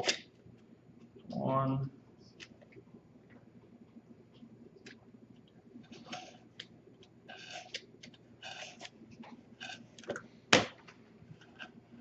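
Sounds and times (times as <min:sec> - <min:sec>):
craft knife cutting paper: 0:07.3 - 0:09.0, 0:09.6 - 0:10.1.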